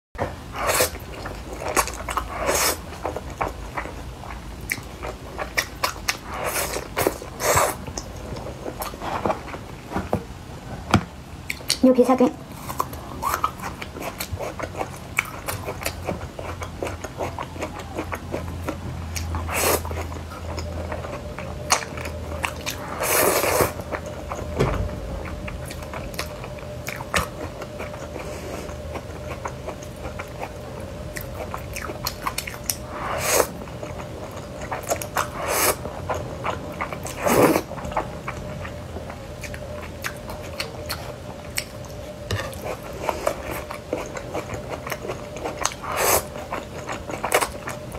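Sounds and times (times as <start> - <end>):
chewing noodles: 12.6 - 24.5, 25.4 - 47.9
slurping noodles: 35.2 - 35.8, 37.1 - 37.7.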